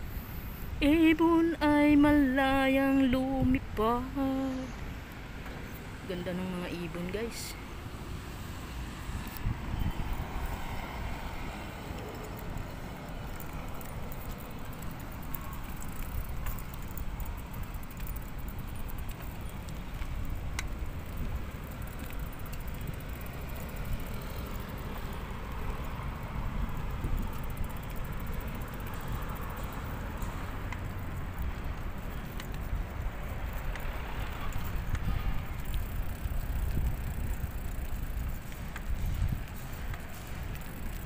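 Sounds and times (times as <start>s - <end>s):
bicycle rumbling: 0.0s - 41.0s
wind on microphone: 9.1s - 11.5s, 31.4s - 40.7s
light clicks and rattles: 11.8s - 41.0s.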